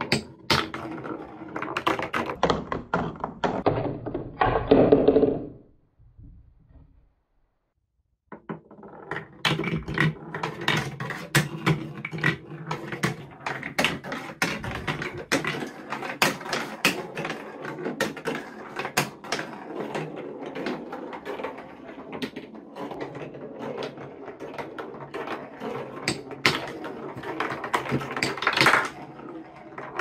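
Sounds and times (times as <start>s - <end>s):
ball rolling on marble run: 0.0s - 5.6s, 8.3s - 30.0s
sharp clicks of marble run: 8.4s - 30.0s.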